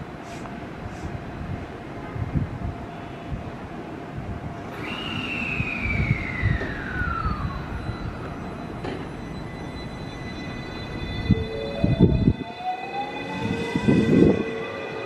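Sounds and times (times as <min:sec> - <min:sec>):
train inverter whine: 0:00.0 - 0:15.0
train running gear rumble: 0:06.5 - 0:12.5.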